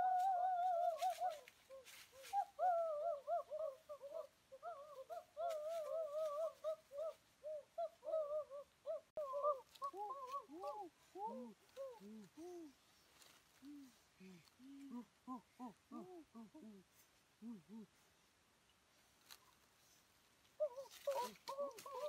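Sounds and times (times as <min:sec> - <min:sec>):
bird-like hooting calls: 0:20.6 - 0:22.0.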